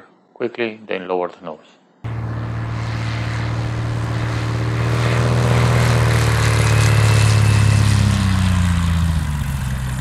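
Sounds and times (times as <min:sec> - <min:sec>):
propeller airplane flying past: 0:02.1 - 0:10.0.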